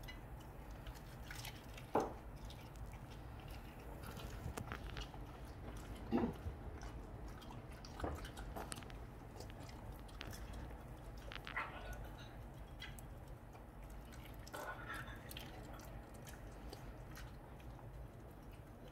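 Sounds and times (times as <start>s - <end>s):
dog licking and chewing: 0.0s - 18.9s.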